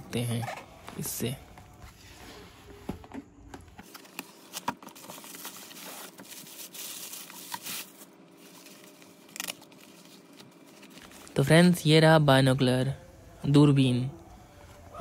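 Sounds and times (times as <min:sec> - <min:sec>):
cardboard packaging rustling and tearing: 0:03.8 - 0:11.4.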